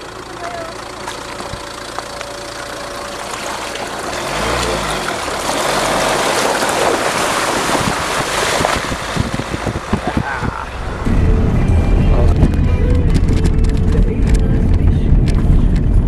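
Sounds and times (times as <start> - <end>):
low engine rumble: 0.0 - 16.0
tyre splashing through water: 2.5 - 10.3.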